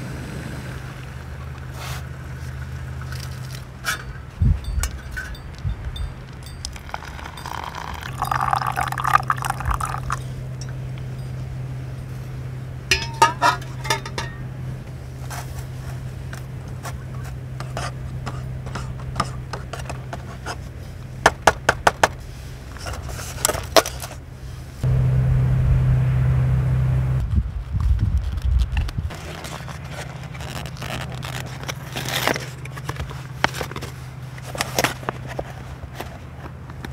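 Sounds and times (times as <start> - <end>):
hot water pouring into cup: 6.8 - 10.2
metal spoon stirring and clinking: 12.9 - 14.4
low rumble: 24.4 - 29.2.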